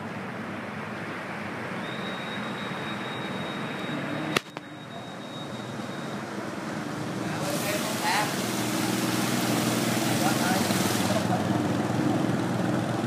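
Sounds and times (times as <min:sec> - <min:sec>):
motorbikes riding through water: 0:06.5 - 0:12.7.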